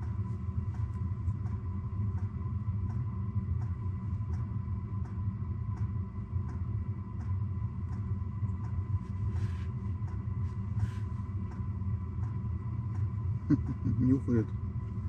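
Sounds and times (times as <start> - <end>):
steady low rumble: 0.0 - 15.0
faint regular ticks: 11.4 - 13.8.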